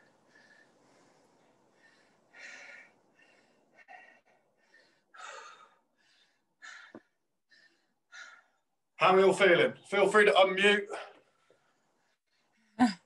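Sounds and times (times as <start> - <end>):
person breathing heavily: 0.0 - 8.8.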